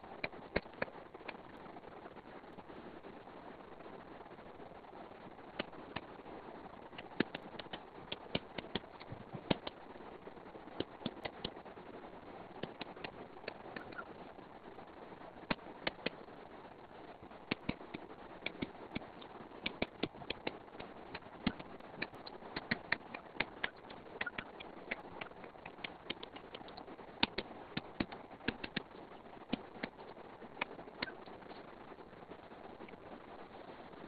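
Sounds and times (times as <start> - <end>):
background hiss: 0.0 - 34.0.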